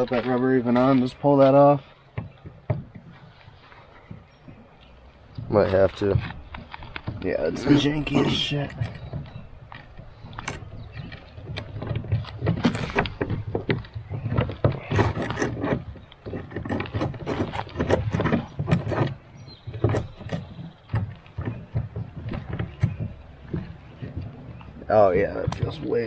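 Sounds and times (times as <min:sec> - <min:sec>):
plastic clicks knocks and rattles: 0:00.0 - 0:26.0.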